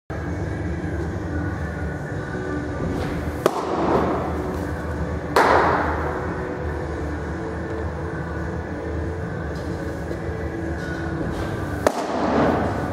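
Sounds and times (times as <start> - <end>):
steady low hum: 0.1 - 12.9
ball smacks: 3.4 - 4.1, 11.8 - 12.7.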